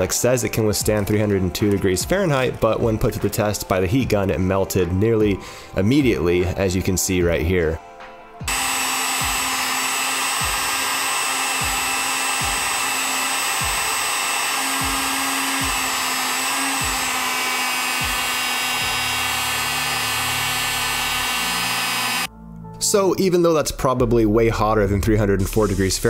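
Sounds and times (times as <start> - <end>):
heat gun blowing: 8.5 - 22.3.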